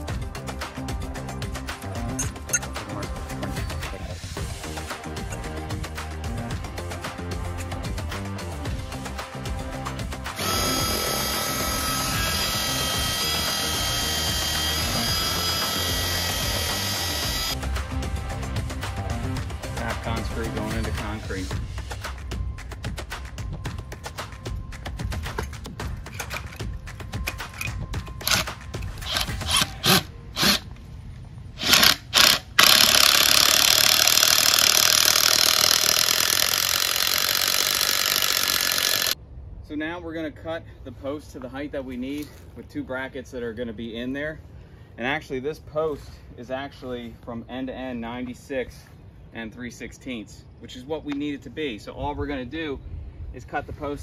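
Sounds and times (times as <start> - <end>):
drill boring into concrete: 10.3 - 17.6, 28.2 - 30.6, 31.6 - 39.2
impact driver driving screw: 10.4 - 17.6, 27.6 - 30.7, 31.6 - 39.2.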